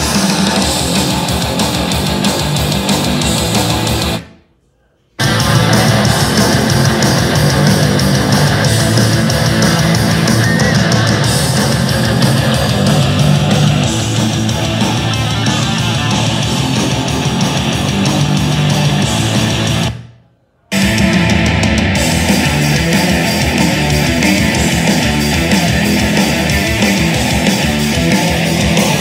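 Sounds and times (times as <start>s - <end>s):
rock music through speaker: 0.0s - 4.3s, 5.2s - 20.1s, 20.7s - 29.0s.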